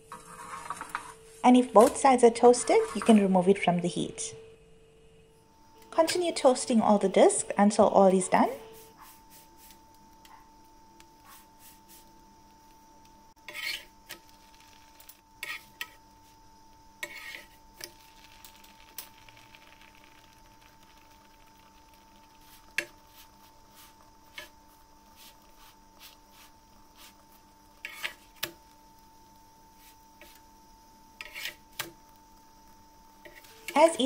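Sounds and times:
faint steady hum: 0.0 - 34.0
roti scraping and tapping on pan: 13.4 - 14.8, 15.4 - 16.1, 17.0 - 19.2, 20.2 - 24.7, 27.8 - 28.6, 31.2 - 32.0, 33.2 - 33.8.

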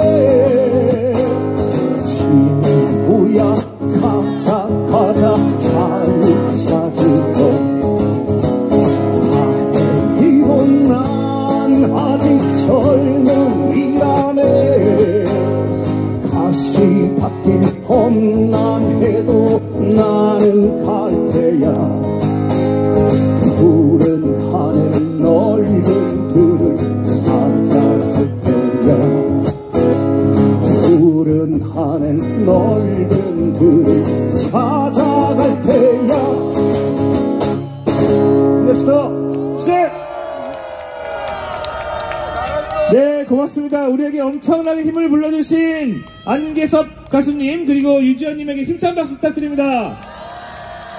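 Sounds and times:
person singing: 0.0 - 7.8, 30.6 - 36.7
strummed acoustic guitar: 0.0 - 39.3.

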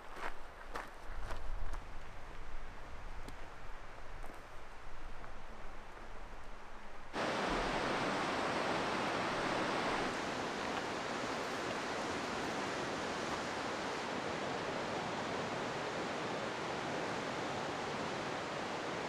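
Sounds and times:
river rapids rushing: 7.2 - 19.0.

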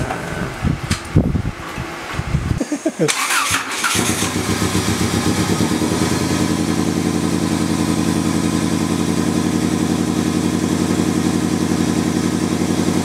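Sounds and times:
car engine idling: 3.6 - 13.0.

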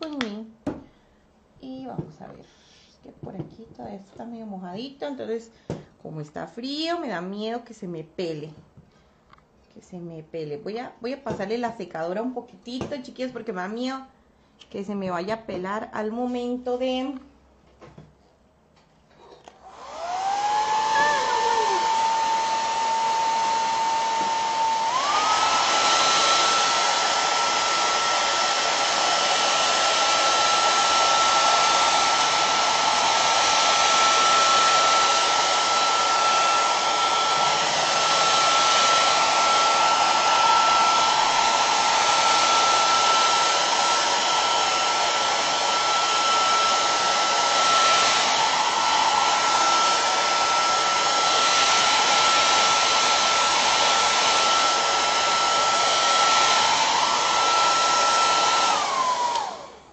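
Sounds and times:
hair dryer blowing: 19.2 - 59.9.

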